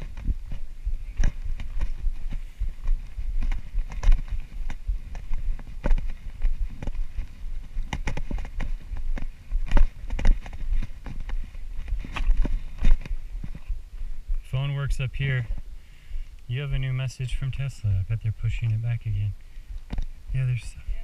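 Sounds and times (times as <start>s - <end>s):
footsteps on stone: 0.0s - 14.5s, 19.7s - 21.0s
wind rumble on microphone: 0.0s - 16.8s, 19.0s - 21.0s.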